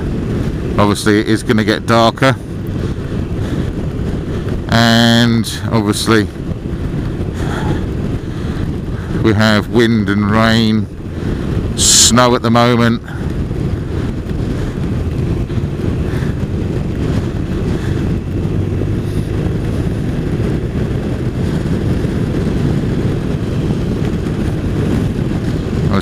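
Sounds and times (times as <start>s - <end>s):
motorcycle engine: 0.0s - 26.0s
road noise: 0.0s - 26.0s
wind buffeting microphone: 0.0s - 26.0s.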